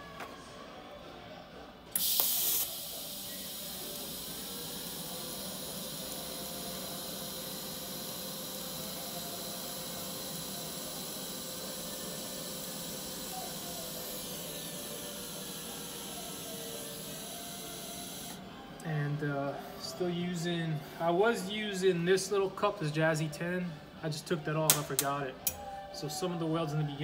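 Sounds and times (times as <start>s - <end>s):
welding arc hissing: 2.0s - 18.4s.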